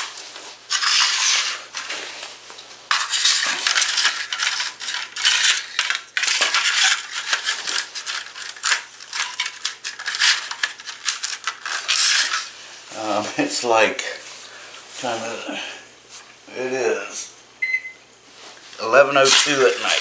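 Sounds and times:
plastic track pieces scraping on tile: 0.7s - 2.2s, 2.9s - 12.6s, 19.2s - 20.0s.

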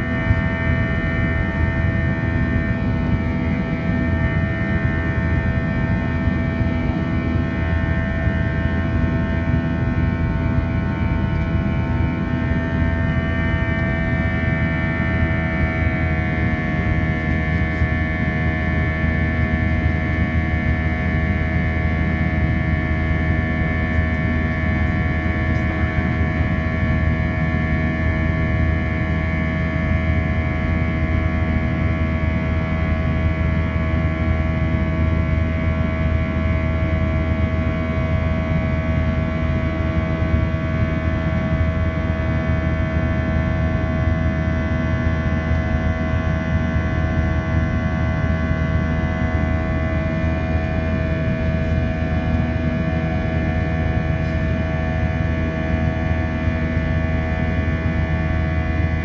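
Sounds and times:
airplane cabin engine drone: 0.0s - 59.0s
steady whining tones: 0.0s - 59.0s.

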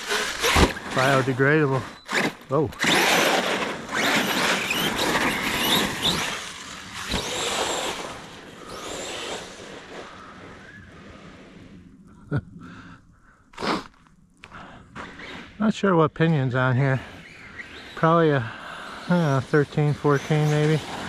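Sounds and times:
electric motor whining: 0.0s - 10.7s
tires churning snow: 0.0s - 11.9s, 15.0s - 21.0s.

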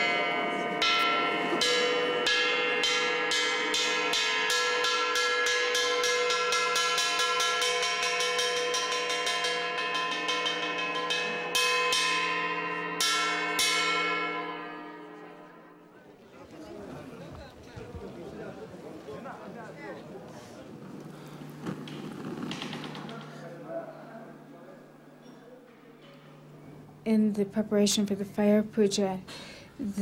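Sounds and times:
ringing metal percussion: 0.0s - 16.1s.

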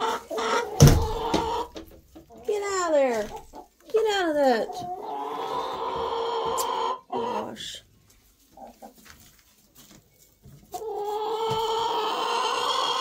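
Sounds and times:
hen clucking softly: 0.0s - 2.4s, 4.7s - 7.6s, 10.7s - 13.0s.

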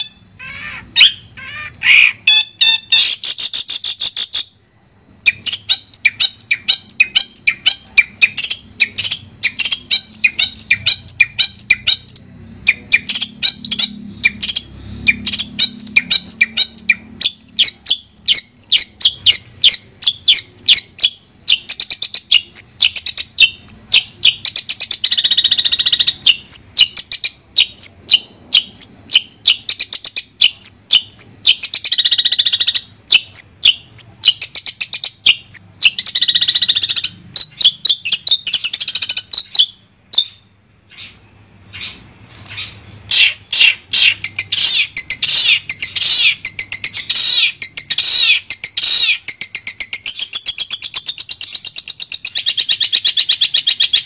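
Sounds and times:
harsh rasping bird call: 0.0s - 4.5s, 5.3s - 49.4s
bird chattering song: 0.0s - 54.0s.

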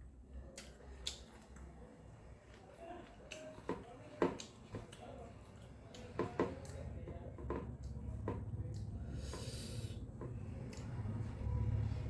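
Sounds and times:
wet mouth clicks while chewing: 0.5s - 1.7s, 4.3s - 6.8s.

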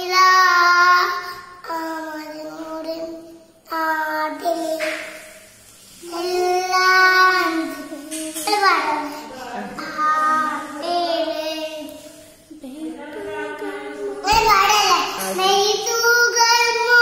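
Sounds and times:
boy singing: 9.8s - 12.1s, 12.7s - 17.0s.

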